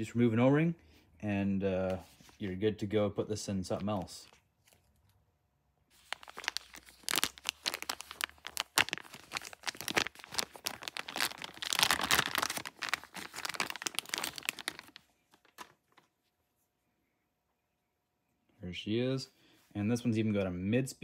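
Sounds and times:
packaging crinkling: 0:05.9 - 0:16.1.

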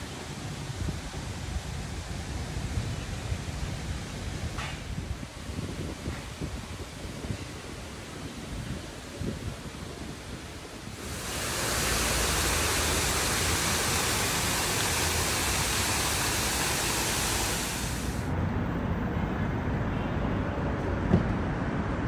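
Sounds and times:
waterfall rushing into pond: 0:00.0 - 0:03.6, 0:10.5 - 0:18.3.

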